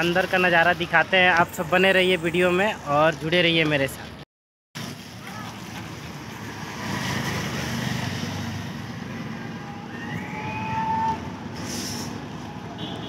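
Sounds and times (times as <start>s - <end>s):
traffic rumble: 4.8s - 13.0s
brief hiss: 11.6s - 12.3s.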